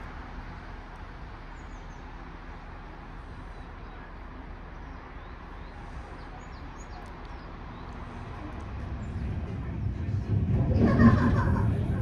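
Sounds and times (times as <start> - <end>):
small birds chirping: 1.4 - 9.4.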